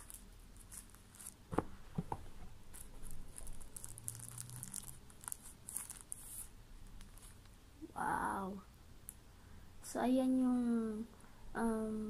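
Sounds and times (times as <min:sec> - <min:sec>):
plastic wrapper crinkling: 0:00.0 - 0:01.7, 0:02.7 - 0:07.6.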